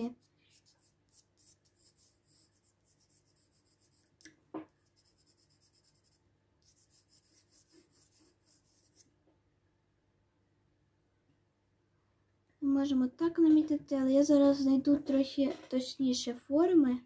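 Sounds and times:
pencil scratching on paper: 0.0 - 4.2, 4.8 - 9.0.

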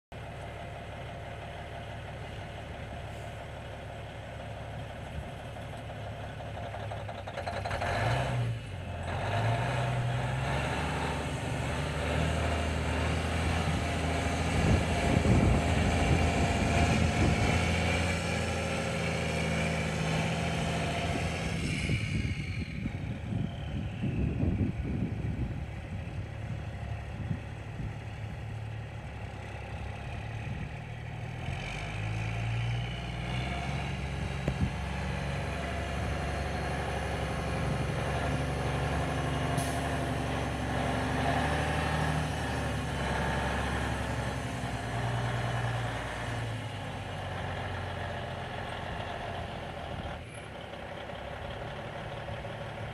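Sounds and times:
diesel truck engine idling: 0.1 - 7.9, 11.4 - 21.3, 22.2 - 31.4, 34.0 - 52.9.

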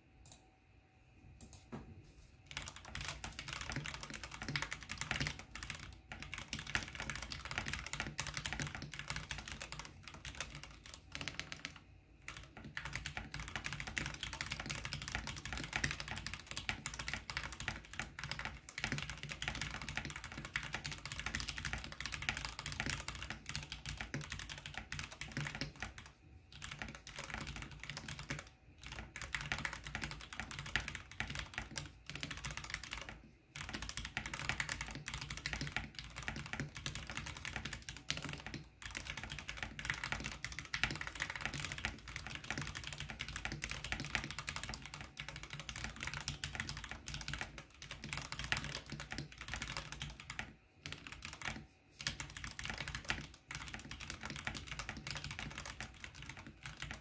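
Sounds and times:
fast typing on mechanical keyboard: 2.5 - 57.0.

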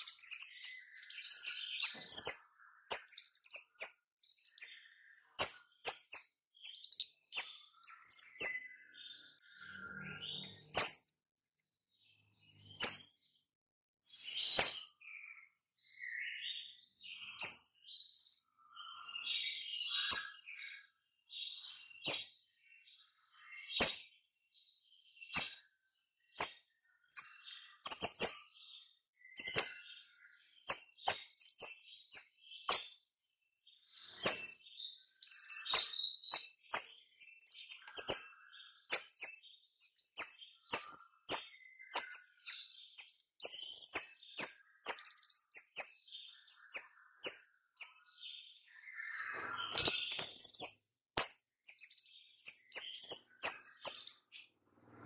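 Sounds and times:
bird chirping sharply: 0.0 - 8.9, 9.6 - 11.1, 12.5 - 13.2, 27.2 - 28.5, 29.3 - 29.9, 30.7 - 33.0, 34.1 - 34.6, 35.2 - 48.0, 49.0 - 54.3.

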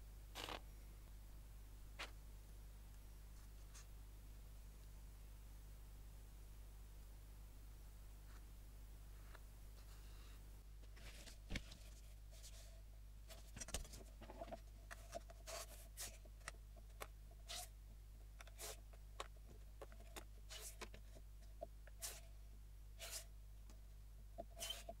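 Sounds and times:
steady low hum: 0.0 - 25.0
blade scratching card: 17.5 - 17.7, 18.4 - 18.8, 20.5 - 20.9, 22.0 - 22.3, 23.0 - 23.3.

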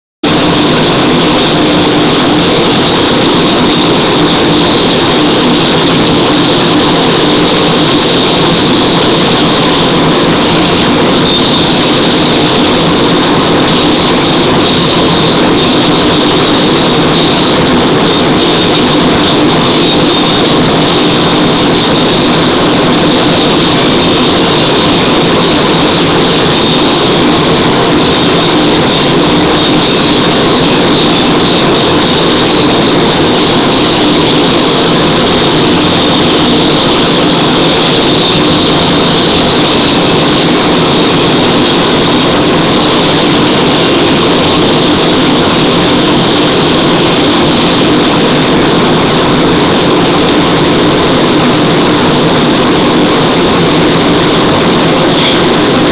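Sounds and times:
loud steady rushing noise: 0.2 - 55.9.

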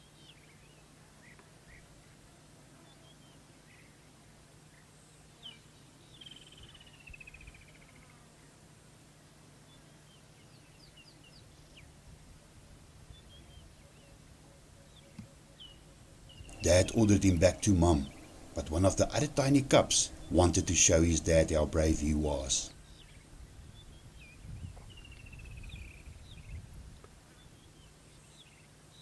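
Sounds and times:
faint bird chirps: 0.0 - 8.6, 13.1 - 21.0, 21.7 - 26.7
low steady hum: 7.5 - 29.0.

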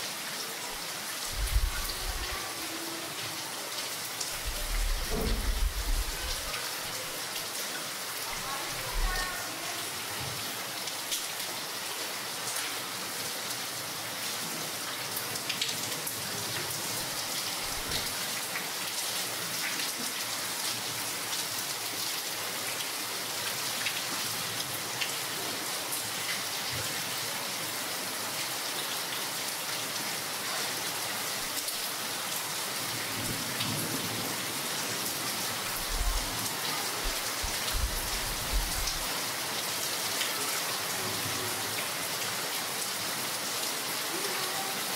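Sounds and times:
rain on a tile roof: 0.0 - 44.9
low thuds: 4.8 - 6.1.

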